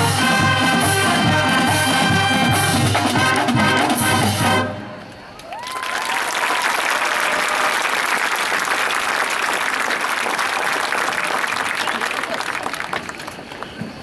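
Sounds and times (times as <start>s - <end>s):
crowd applauding: 5.4s - 14.0s.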